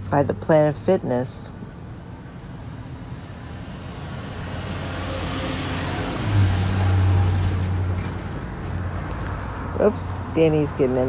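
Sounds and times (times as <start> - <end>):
vehicle driving past: 2.7 - 10.4.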